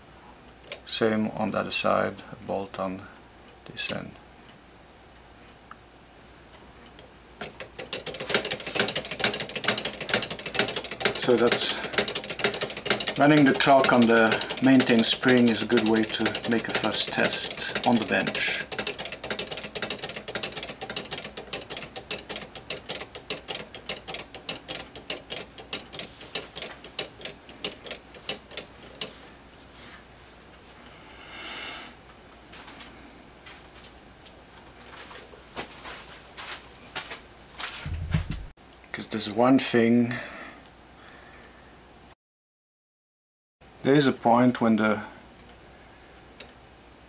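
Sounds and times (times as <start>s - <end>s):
clock escapement clicking: 7.4s - 29.2s.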